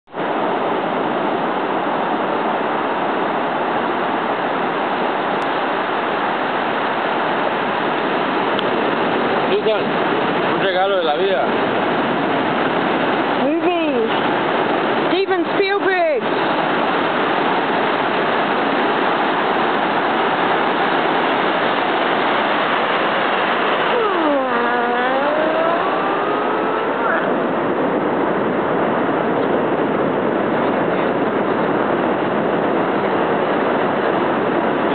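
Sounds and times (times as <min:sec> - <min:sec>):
ocean surf on a beach: 0:00.1 - 0:34.9
person's drawn-out voice: 0:23.9 - 0:26.2.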